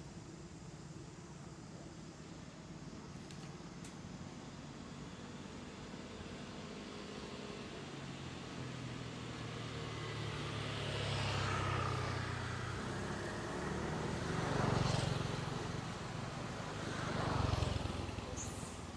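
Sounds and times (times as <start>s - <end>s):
road vehicles passing: 4.0s - 18.9s.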